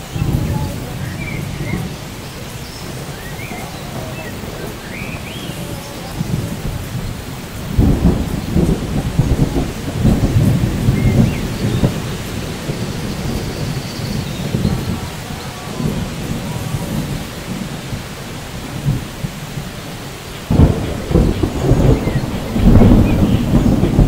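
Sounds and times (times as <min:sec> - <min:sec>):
steady rain: 0:00.0 - 0:24.0
thunder rumbling: 0:00.0 - 0:24.0
bird chirps: 0:00.1 - 0:06.2, 0:10.8 - 0:15.7, 0:21.6 - 0:23.8.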